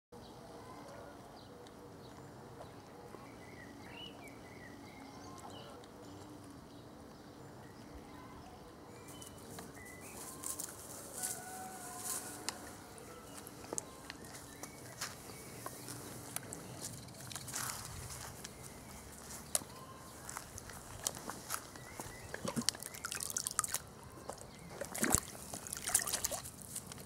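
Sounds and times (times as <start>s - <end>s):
bird calls: 7.2s - 26.4s.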